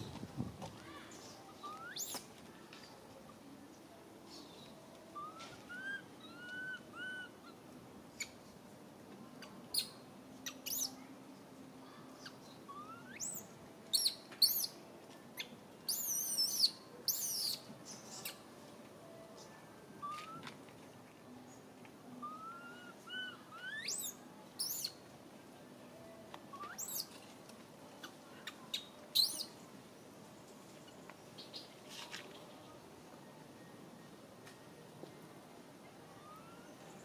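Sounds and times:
baby monkey high-pitched cries: 0:15.9 - 0:17.6, 0:22.2 - 0:24.9, 0:29.2 - 0:29.4.

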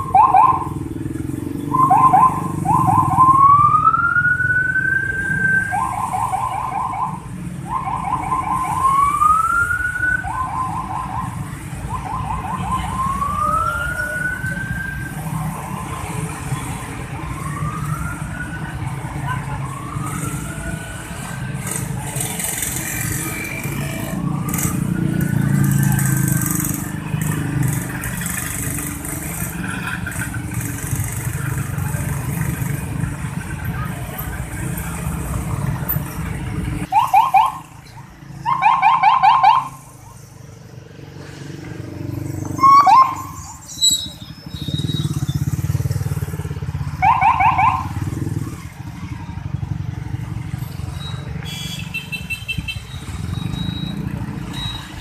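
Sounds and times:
motor scooter engines passing: 0:00.0 - 0:55.0
scooter horns beeping: 0:51.4 - 0:55.0.

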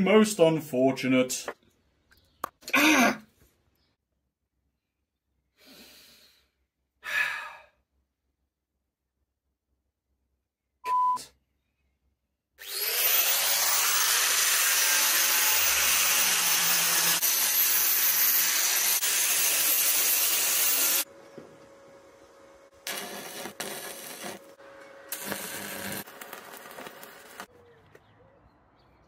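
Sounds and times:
angle grinder grinding steel: 0:12.6 - 0:21.1, 0:22.7 - 0:27.5.

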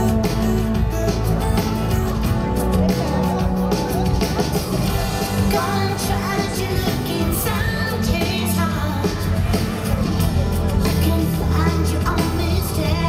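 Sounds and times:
live pop band playing: 0:00.0 - 0:13.0
steady bass line: 0:00.0 - 0:13.0
woman singing lead vocal: 0:05.2 - 0:09.9, 0:10.7 - 0:13.0.

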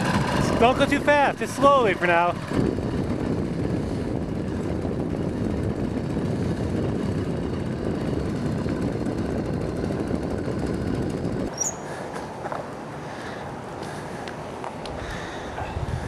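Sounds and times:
two-stroke bicycle engine running: 0:00.0 - 0:12.2.

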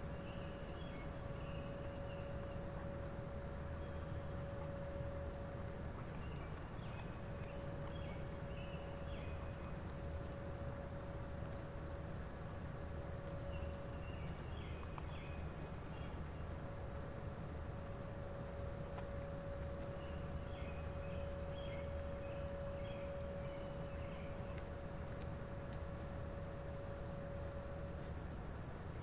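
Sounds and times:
distant warning siren: 0:00.0 - 0:29.0
insect chorus: 0:00.0 - 0:29.0.

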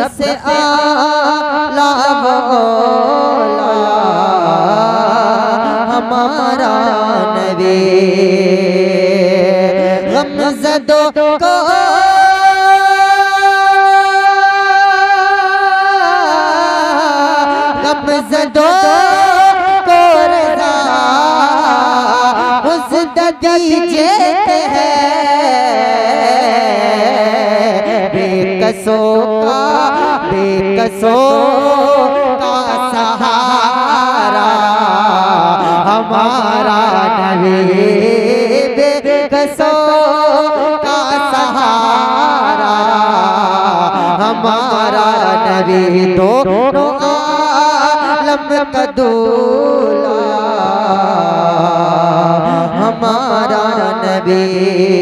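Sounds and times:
man singing: 0:00.0 - 0:55.0.

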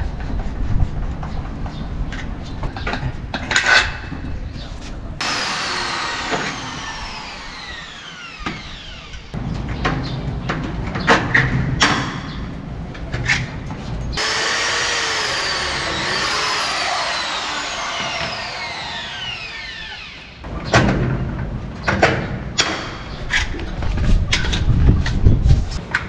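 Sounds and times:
electric drill motor whine: 0:05.2 - 0:09.4, 0:14.2 - 0:20.4.

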